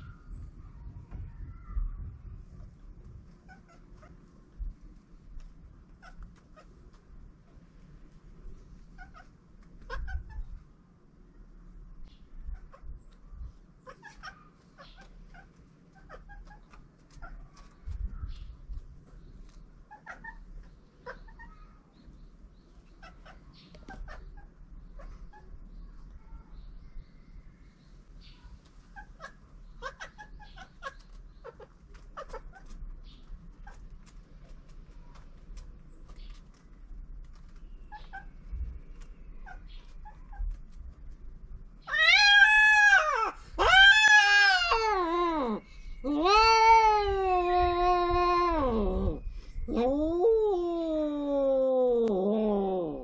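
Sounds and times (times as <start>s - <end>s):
wind rumble on microphone: 0.0s - 6.4s, 9.9s - 10.8s, 11.9s - 13.9s, 17.2s - 19.5s, 38.1s - 41.9s, 45.8s - 51.2s
cats crying: 41.8s - 53.0s.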